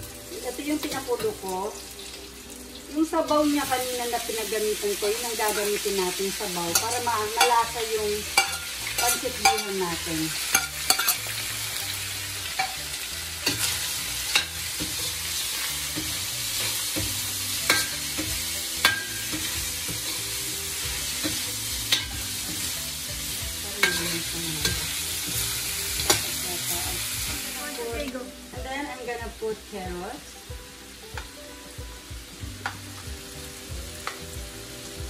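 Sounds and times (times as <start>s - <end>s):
chicken sizzling in oil: 0.0s - 35.0s
spatula scraping a wok: 6.7s - 27.3s.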